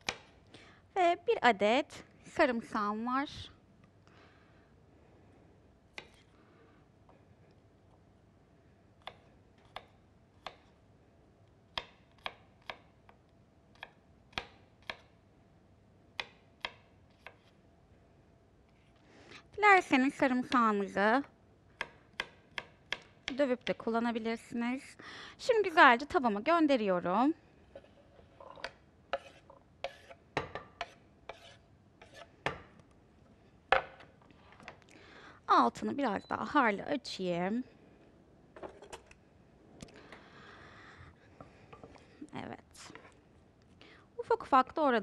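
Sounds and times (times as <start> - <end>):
knife chopping on cutting board: 29.1 - 32.7.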